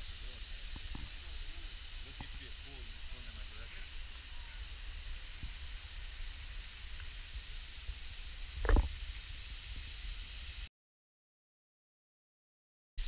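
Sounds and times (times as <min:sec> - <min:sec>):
hiss of falling water: 0:00.0 - 0:10.7
wind rumbling on microphone: 0:03.9 - 0:10.6.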